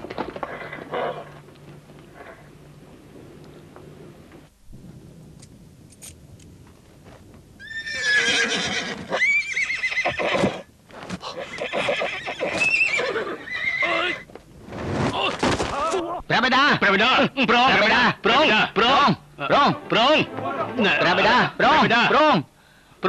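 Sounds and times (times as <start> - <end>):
horses neighing: 7.6 - 14.3.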